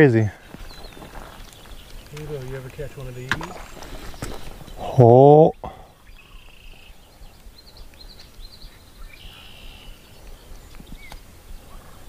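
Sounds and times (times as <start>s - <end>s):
birds chirping: 0.0s - 12.0s
wind rumble on microphone: 6.1s - 12.0s.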